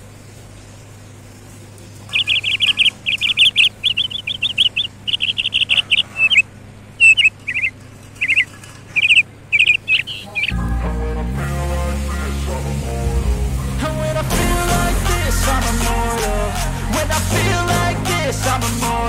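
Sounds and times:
parakeet chirping: 2.1 - 10.6
music: 10.5 - 19.0.

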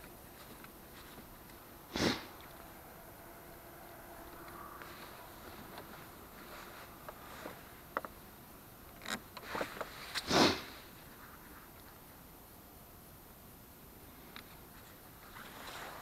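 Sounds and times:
loud breath or sniff: 1.9 - 2.4, 10.2 - 10.9.

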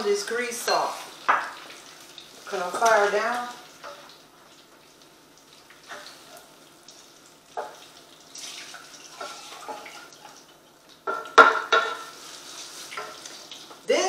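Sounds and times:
grease pouring and dripping: 1.5 - 11.4.

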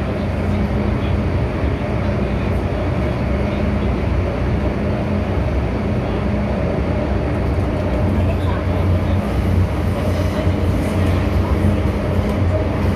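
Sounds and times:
low train hum: 0.0 - 12.9
train wheels rumbling on rail: 0.0 - 12.9.

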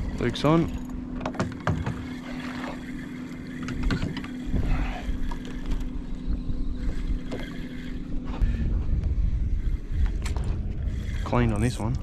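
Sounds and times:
fishing reels clicking and knocking: 0.0 - 8.2, 9.6 - 12.0
steady low hum: 0.0 - 12.0
wind buffeting microphone: 3.7 - 12.0.

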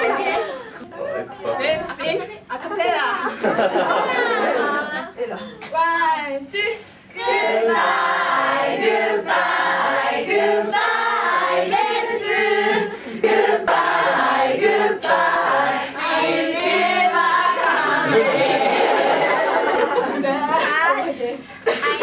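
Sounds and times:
young women singing together: 6.4 - 21.0.

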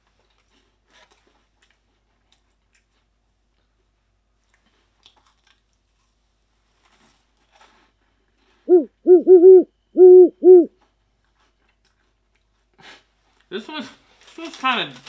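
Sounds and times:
owl hooting: 8.7 - 10.7.

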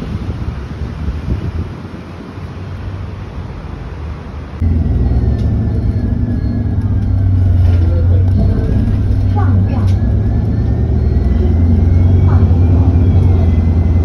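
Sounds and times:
wind on microphone: 0.0 - 3.2
street traffic: 0.0 - 14.0
low engine drone inside vehicle: 4.4 - 14.0.

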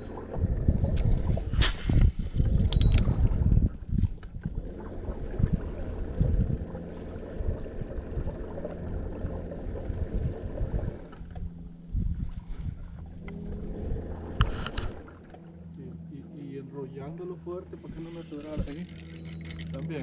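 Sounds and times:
wind buffeting microphone: 0.0 - 15.2
boat motor running: 0.0 - 20.0.

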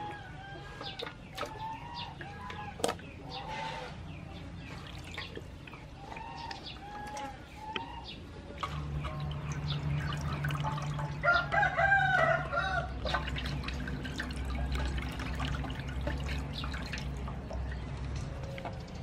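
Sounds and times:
water splashing in metal basin: 0.8 - 3.2, 4.5 - 7.5, 8.4 - 19.0
rooster crowing: 11.2 - 12.9.

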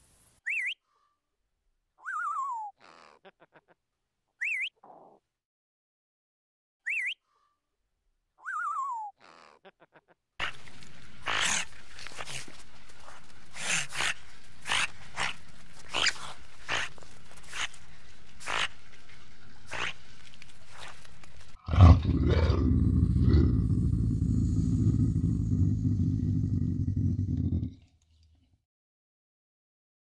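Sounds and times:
background hiss: 0.0 - 0.5
otter calling: 11.2 - 12.4, 18.4 - 18.8, 19.7 - 20.1
loud low rumble: 21.7 - 27.8.

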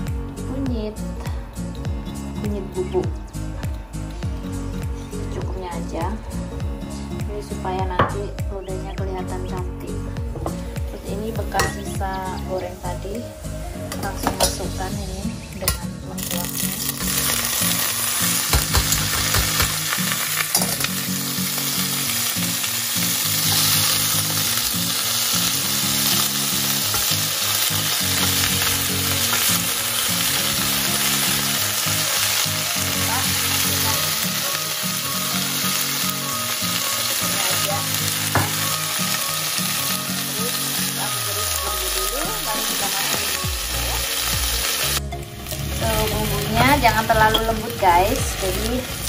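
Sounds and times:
food sizzling in hot oil: 10.4 - 49.0.

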